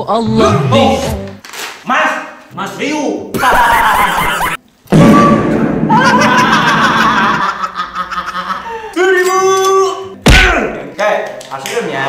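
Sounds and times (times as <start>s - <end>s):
men laughing and shouting: 5.9s - 9.0s.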